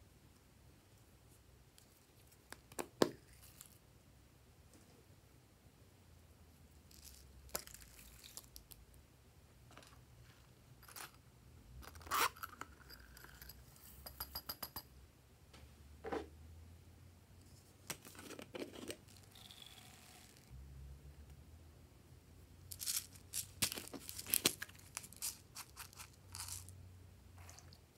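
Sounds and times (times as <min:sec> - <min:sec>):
foam beads rattling into glass dish: 0:22.7 - 0:26.7.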